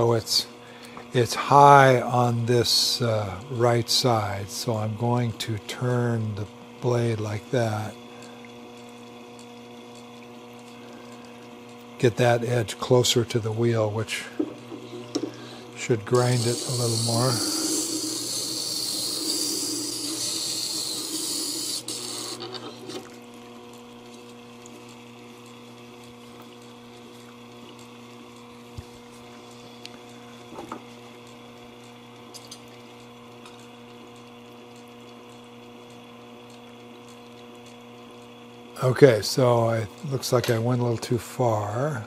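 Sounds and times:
grinder motor hum: 0:00.0 - 0:42.0
wet hissing blade grinding: 0:16.0 - 0:22.8.

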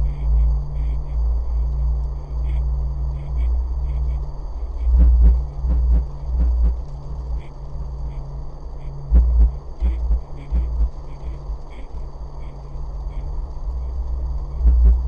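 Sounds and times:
low steady drone: 0:00.0 - 0:15.0
thin high whine: 0:00.0 - 0:15.0
deep bass thumps: 0:09.2 - 0:10.9, 0:14.7 - 0:15.0.

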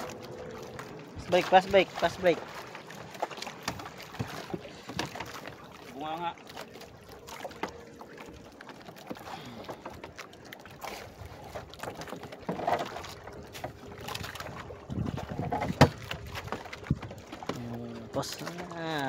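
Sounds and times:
light knocks on wooden boat: 0:03.6 - 0:05.5, 0:15.3 - 0:17.6
wind on microphone: 0:14.1 - 0:17.3.

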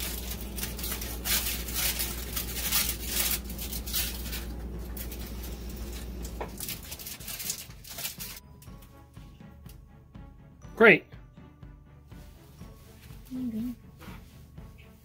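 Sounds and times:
aluminium foil crinkling: 0:00.0 - 0:08.9.

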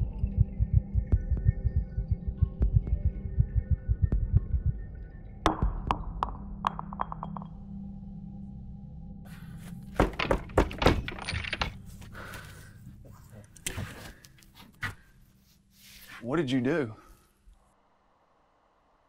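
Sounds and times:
glass vial clinking on wood floor: 0:06.7 - 0:07.6.

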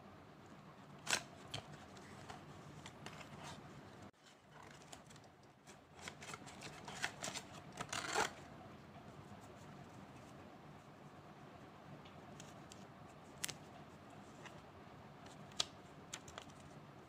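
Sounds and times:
paper and card rustling: 0:01.0 - 0:08.4.

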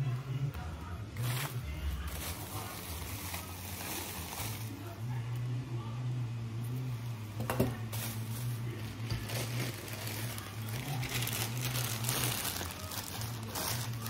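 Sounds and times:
plastic packaging crinkling: 0:01.2 - 0:04.9, 0:07.9 - 0:14.0.

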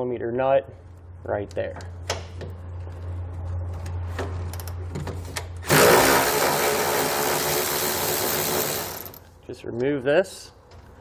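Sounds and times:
cordless ratchet running: 0:05.7 - 0:09.2.

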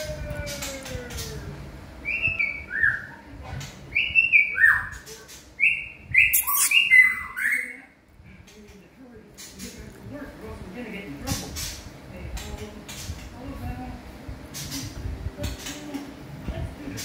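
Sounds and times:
songbird whistling: 0:05.6 - 0:07.8.

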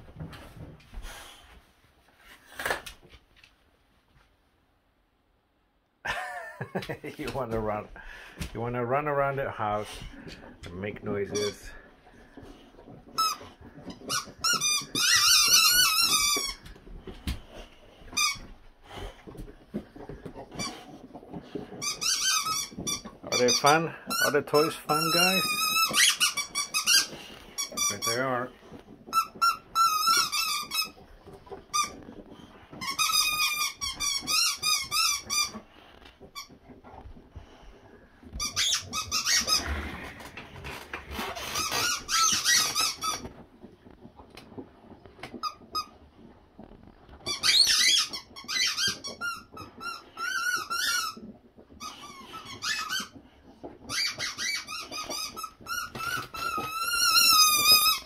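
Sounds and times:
squeaky rubber toys squeaking: 0:09.7 - 0:16.7, 0:18.0 - 0:18.6, 0:19.7 - 0:36.8, 0:38.3 - 0:40.1, 0:40.7 - 0:43.4, 0:47.2 - 0:58.0.

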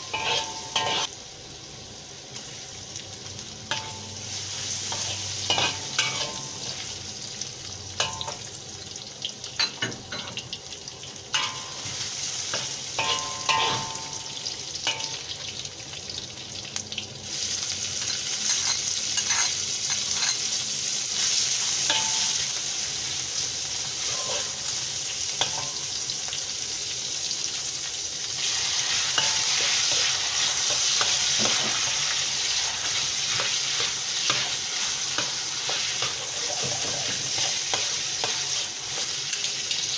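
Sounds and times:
metal ladle scraping wok: 0:00.0 - 0:01.1, 0:11.4 - 0:14.2, 0:18.0 - 0:20.6, 0:24.0 - 0:24.7
food sizzling in oil: 0:00.0 - 0:39.9.

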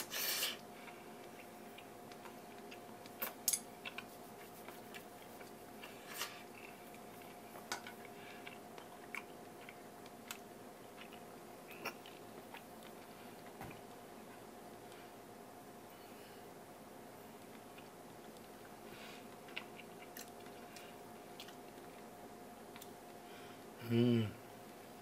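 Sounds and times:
faint steady hum: 0:00.0 - 0:25.0
person chewing: 0:00.2 - 0:13.6, 0:19.2 - 0:22.1.

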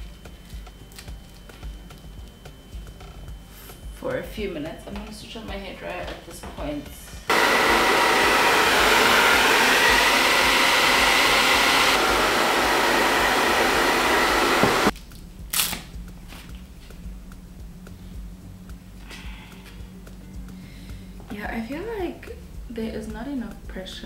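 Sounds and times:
hair dryer blowing: 0:07.3 - 0:14.9.

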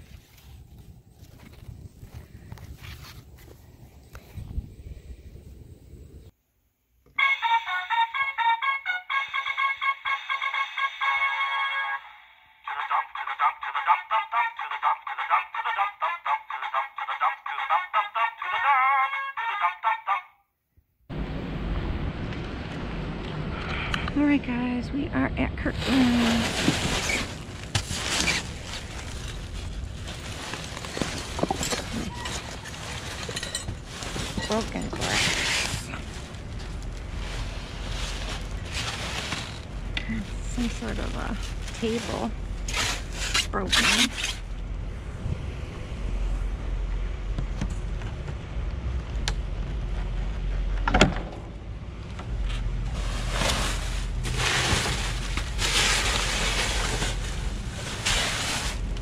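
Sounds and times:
low rumble: 0:21.1 - 0:43.6
plastic bags and bubble wrap rustling: 0:25.6 - 0:44.5, 0:52.8 - 0:59.0.

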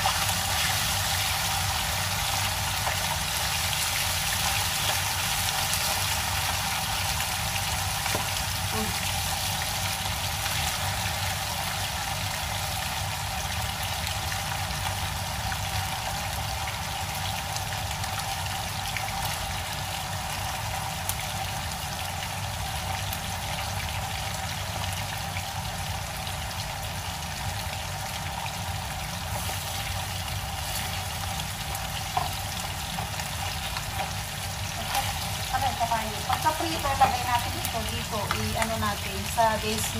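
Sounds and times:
fish sizzling in hot oil: 0:00.0 - 0:39.9.

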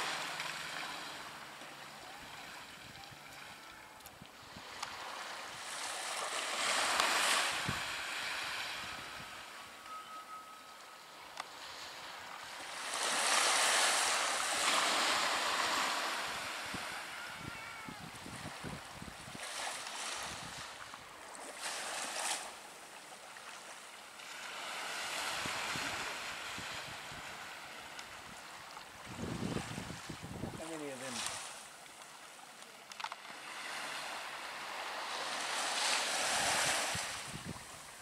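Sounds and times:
small waves washing on shore: 0:00.0 - 0:09.9, 0:11.3 - 0:38.0
wind buffeting microphone: 0:16.4 - 0:19.4, 0:29.0 - 0:30.7, 0:36.3 - 0:37.9.

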